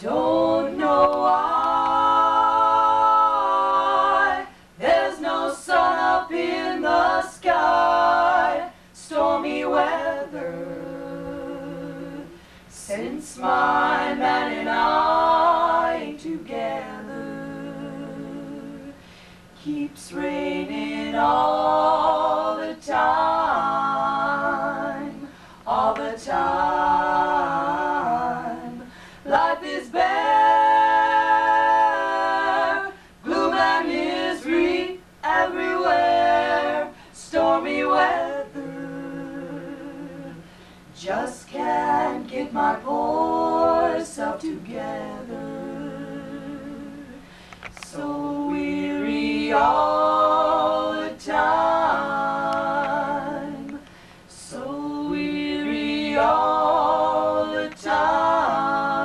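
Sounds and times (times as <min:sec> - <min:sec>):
women singing a cappella: 0:00.0 - 0:59.0.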